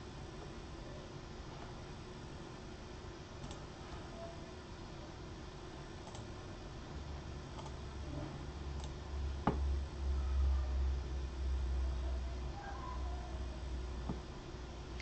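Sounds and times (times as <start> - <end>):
keyboard and mouse clicks: 6.0 - 6.3, 7.6 - 7.8, 8.8 - 9.0.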